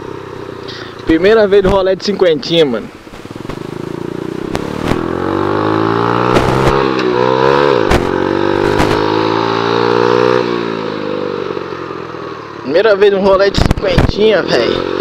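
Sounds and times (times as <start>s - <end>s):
small motorcycle engine revving: 3.2s - 11.9s, 14.4s - 15.0s
sharp knocks: 6.3s - 7.1s, 7.8s - 9.2s.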